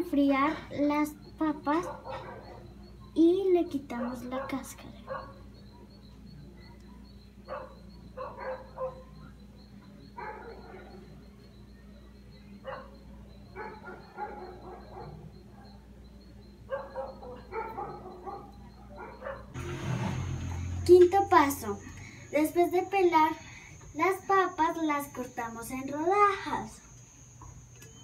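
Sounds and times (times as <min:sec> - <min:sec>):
faint steady hum: 0:00.0 - 0:28.0
dog barking: 0:01.7 - 0:02.9, 0:03.9 - 0:06.0, 0:06.6 - 0:09.4, 0:10.1 - 0:11.2, 0:12.6 - 0:15.9, 0:16.6 - 0:19.6.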